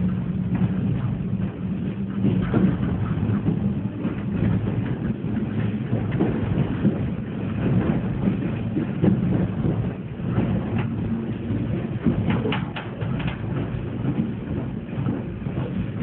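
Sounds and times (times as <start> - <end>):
train interior hum: 0.0 - 16.0
train running gear rattles: 0.0 - 16.0.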